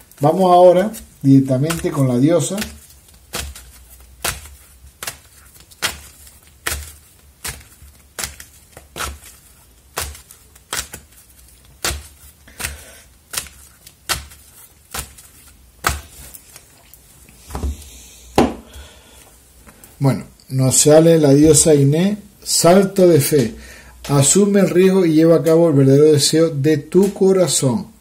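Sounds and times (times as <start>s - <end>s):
cards shuffled by hand: 0.0s - 17.9s.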